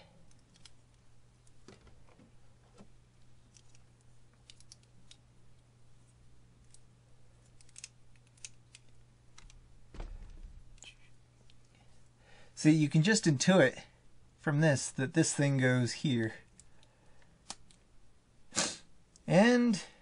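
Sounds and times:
faint steady hum: 0:00.0 - 0:20.0
low bump: 0:09.9 - 0:10.8.

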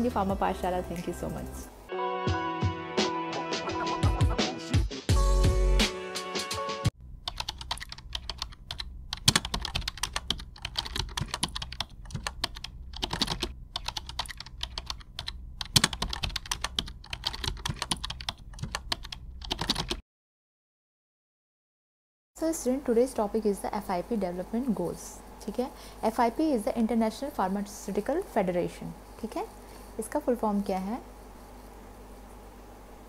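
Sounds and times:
music jingle: 0:00.0 - 0:06.9.

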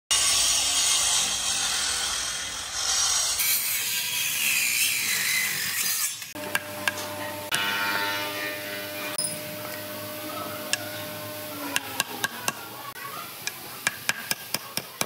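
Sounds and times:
power tool grinding timber: 0:06.3 - 0:12.6.

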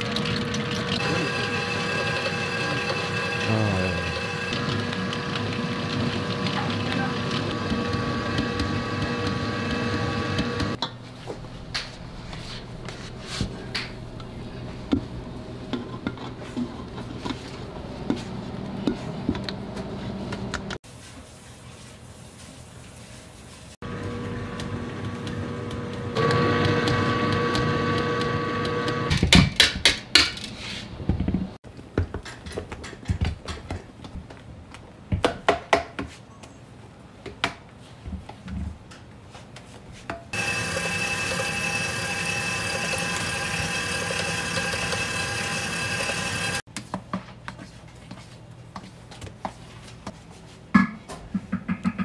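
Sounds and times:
stand mixer motor whining: 0:00.0 - 0:10.8, 0:23.8 - 0:29.1, 0:40.4 - 0:46.6
machine whine: 0:00.1 - 0:10.8, 0:40.4 - 0:46.6.

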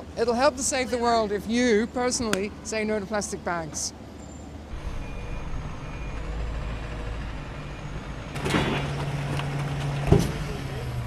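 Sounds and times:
truck engine rumbling: 0:00.0 - 0:11.0
loud clatter: 0:08.2 - 0:10.5.

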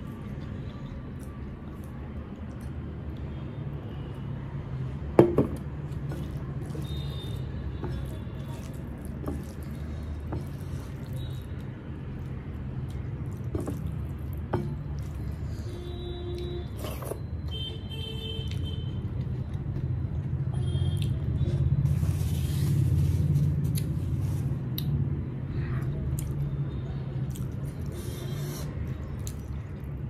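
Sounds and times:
hand squishing food on a plate: 0:05.6 - 0:15.6.

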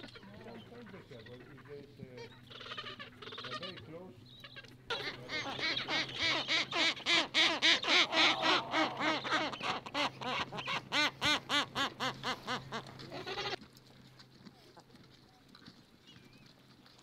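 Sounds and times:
penguin honking calls: 0:00.2 - 0:13.6.

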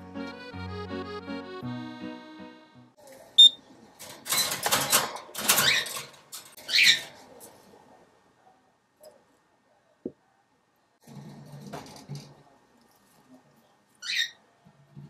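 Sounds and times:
background music: 0:00.0 - 0:03.0
wire birdcage door rattling: 0:04.0 - 0:07.2.

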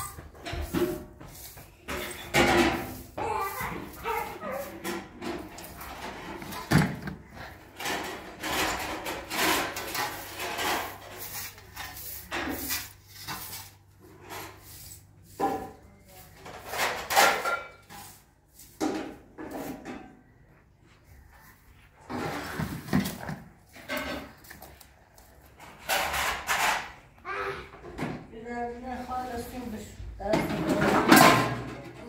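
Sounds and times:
broom scraping on tiled floor: 0:00.0 - 0:20.1, 0:21.0 - 0:26.7.

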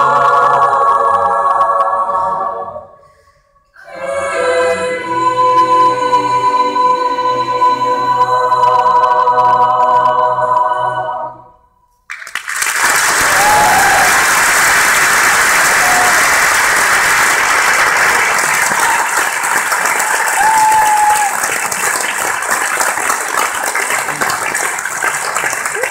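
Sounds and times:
choir holding chord: 0:00.0 - 0:03.2, 0:03.8 - 0:11.7
audience applauding: 0:12.1 - 0:25.9
crowd calls: 0:13.1 - 0:22.0.

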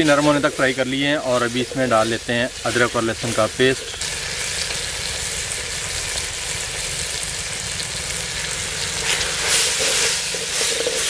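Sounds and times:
vegetables sizzling in hot oil: 0:00.0 - 0:11.0
wooden spoon stirring and scraping: 0:09.0 - 0:11.0.

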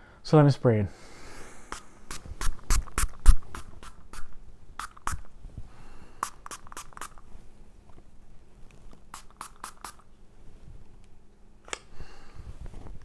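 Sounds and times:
perfume atomizer spritzes: 0:01.6 - 0:05.3, 0:06.2 - 0:07.2, 0:09.1 - 0:10.0.

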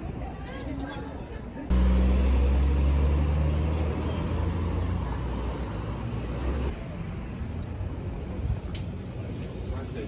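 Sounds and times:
street traffic: 0:00.0 - 0:10.0
vehicle engine humming: 0:01.7 - 0:09.7.

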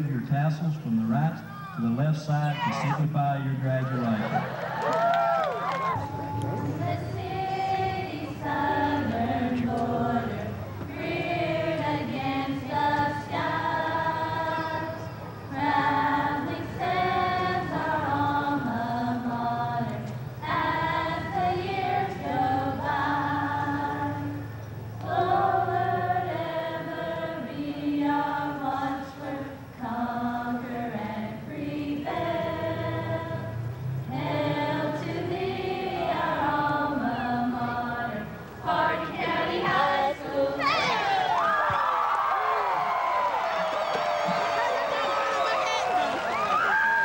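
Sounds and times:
young women singing together: 0:05.9 - 0:41.8.

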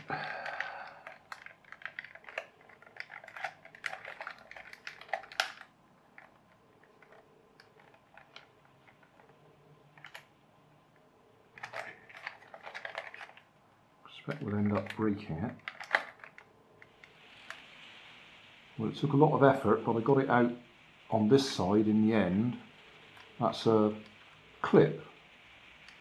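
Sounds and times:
metal tool clicking on plastic: 0:00.0 - 0:09.1, 0:15.6 - 0:17.1.

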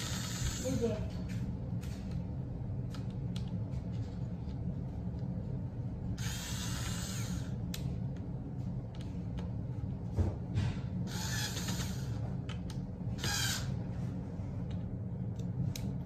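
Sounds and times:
electric screwdriver driving screw: 0:00.0 - 0:00.8, 0:06.2 - 0:07.6, 0:11.1 - 0:12.1, 0:13.2 - 0:13.7.

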